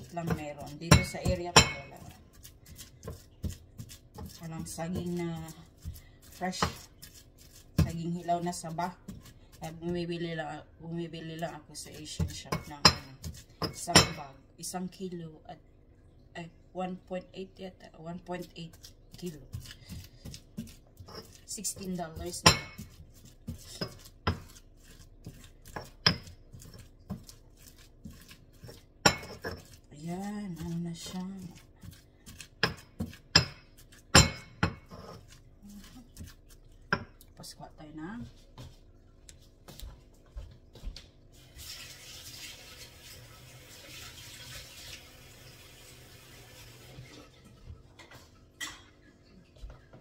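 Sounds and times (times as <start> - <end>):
soft squelching and scraping: 0.0 - 15.0, 17.1 - 34.1, 34.8 - 43.3
pestle knocking against mortar: 0.1 - 2.2, 7.7 - 8.0, 19.1 - 24.6, 31.8 - 35.2
kitchen tap running: 41.4 - 48.3.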